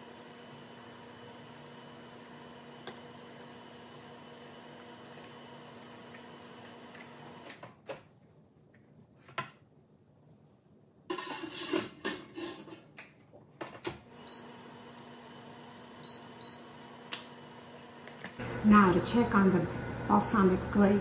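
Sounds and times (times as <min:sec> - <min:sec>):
oven hum: 0:00.0 - 0:07.5, 0:14.2 - 0:21.0
short high oven beeps: 0:14.3 - 0:16.7.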